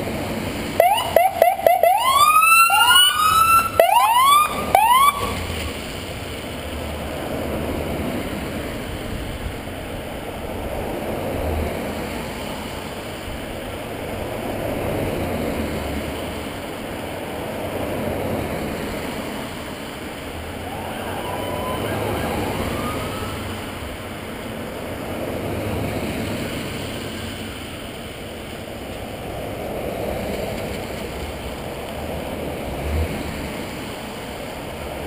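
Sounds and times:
vehicles driving past: 0.0 - 35.0
siren whoop: 0.8 - 5.5, 20.5 - 24.0.

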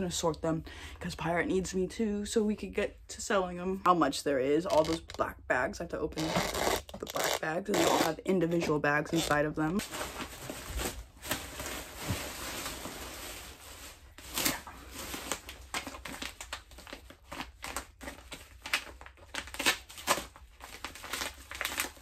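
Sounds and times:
plastic bags rustling and crinkling: 9.0 - 22.0.

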